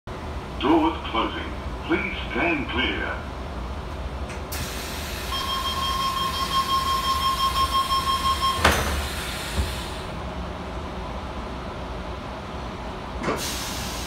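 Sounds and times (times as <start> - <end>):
high electronic warning tone: 5.3 - 8.7
sliding doors shutting with knock: 8.5 - 9.8
hiss: 13.3 - 14.0.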